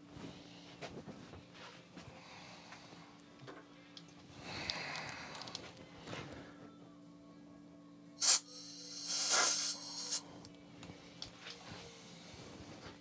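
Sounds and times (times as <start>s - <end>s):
compressed air blasts: 8.2s - 10.2s.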